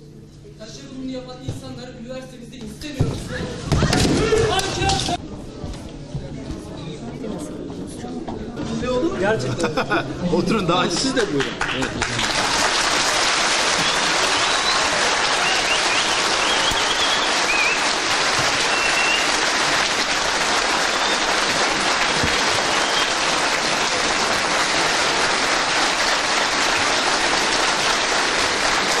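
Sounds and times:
audience applauding: 10.8s - 29.0s.

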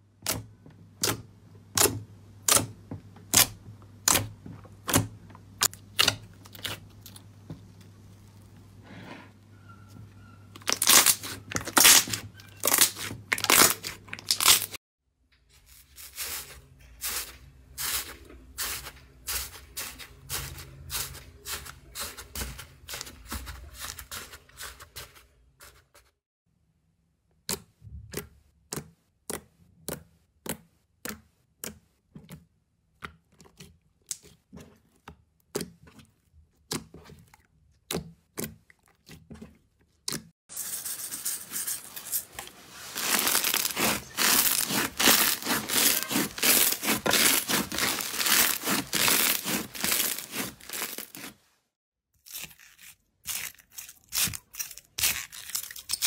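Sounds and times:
slime squelching: 1.0s - 9.2s, 10.5s - 14.8s, 28.7s - 40.3s, 41.4s - 51.5s
sandy slime crackling: 41.1s - 51.5s.

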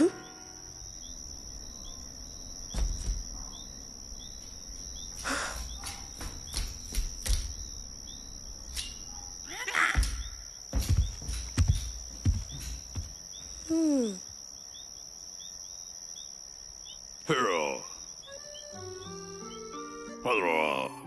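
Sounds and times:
crickets trilling: 0.0s - 21.0s
soft thumps: 2.7s - 3.6s, 10.0s - 13.5s.

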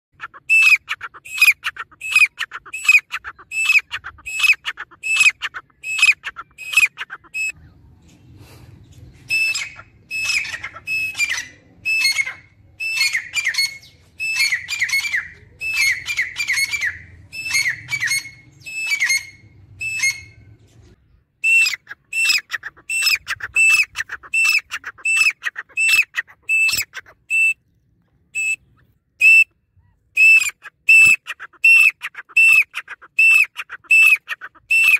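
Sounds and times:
faint low rumble: 7.5s - 9.3s
francolin calling: 21.4s - 27.6s.

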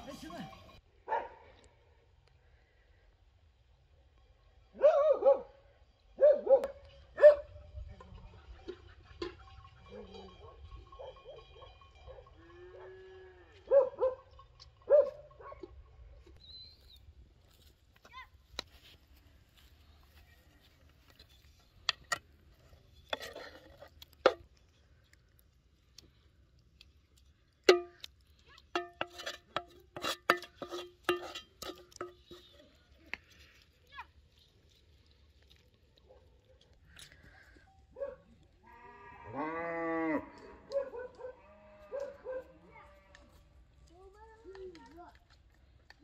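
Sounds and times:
wooden spoon scraping metal pan: 21.2s - 24.5s, 28.8s - 32.7s.

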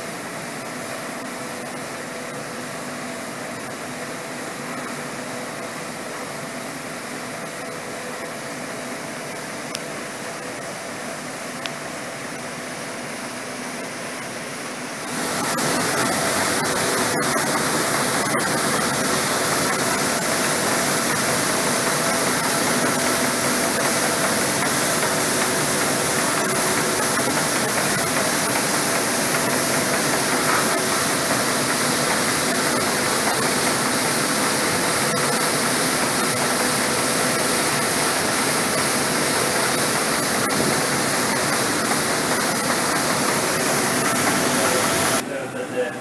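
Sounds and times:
loud machine roar: 15.0s - 45.2s.

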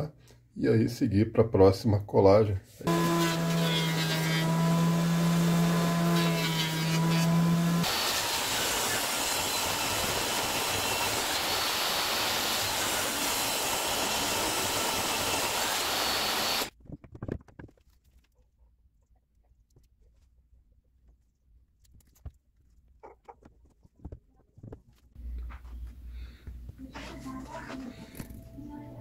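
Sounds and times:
jointer motor hum: 2.9s - 16.7s
table saw running: 2.9s - 16.7s.

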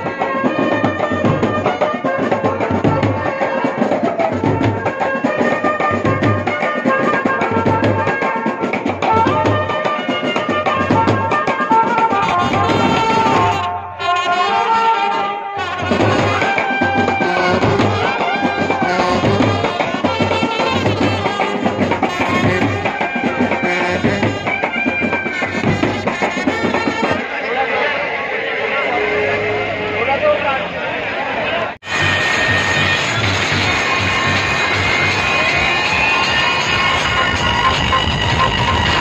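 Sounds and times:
marching drums beat: 0.0s - 13.7s, 15.6s - 27.2s
trumpets and saxophones melody: 0.0s - 30.8s, 31.8s - 39.0s.

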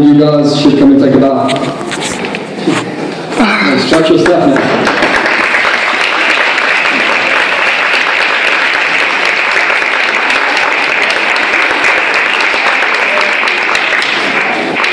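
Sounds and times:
audience applauding: 3.9s - 14.9s.

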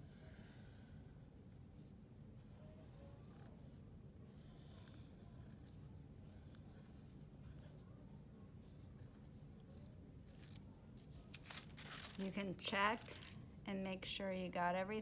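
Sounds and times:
pencil scratching on paper: 0.0s - 8.0s.

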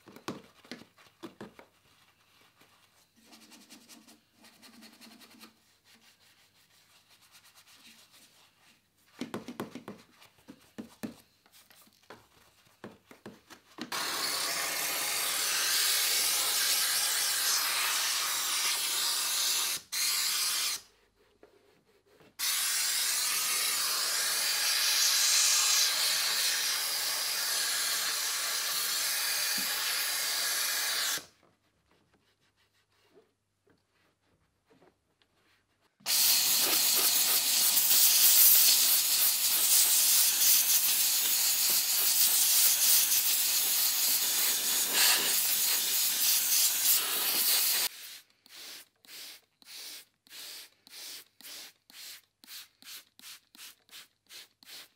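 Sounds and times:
brush scrubbing plastic: 0.6s - 9.0s, 31.4s - 42.7s
steam cleaner nozzle hissing: 13.9s - 20.8s, 22.4s - 31.2s, 36.1s - 52.6s.

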